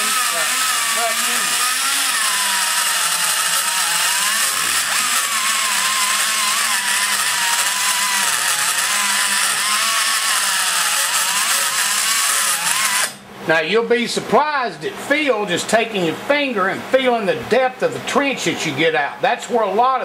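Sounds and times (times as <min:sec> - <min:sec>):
die grinder whining: 0:00.0 - 0:13.2.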